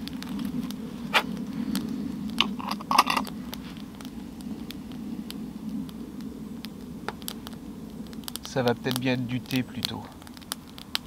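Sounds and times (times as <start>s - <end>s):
low rumble: 0.0s - 11.0s
wood fire crackling: 0.0s - 11.0s
metal bottle and cup clinking: 2.5s - 3.3s.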